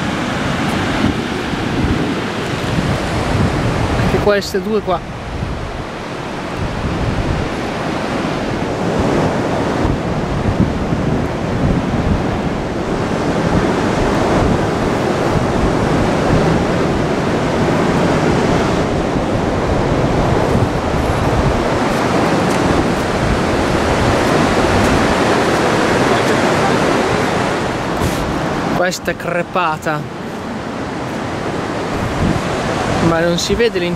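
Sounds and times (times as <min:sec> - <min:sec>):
ocean surf on sandy beach: 0:00.0 - 0:33.9
wind gusting on microphone: 0:00.0 - 0:33.9.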